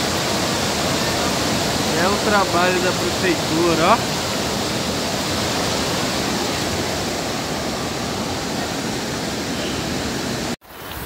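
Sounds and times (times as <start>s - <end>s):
floodwater rushing and splashing: 0.0s - 11.0s.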